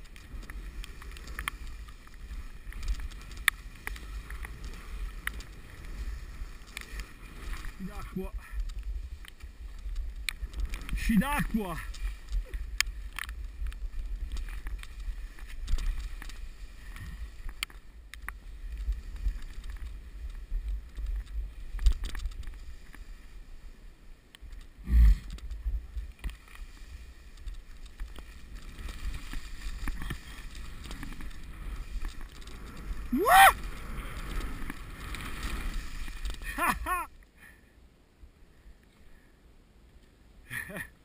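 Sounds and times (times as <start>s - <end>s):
scattered clicks: 0.0s - 6.0s
wind rumbling on microphone: 0.0s - 37.2s
skis sliding over wet snow: 0.0s - 37.7s
skier whooping: 33.0s - 34.2s, 36.4s - 37.2s.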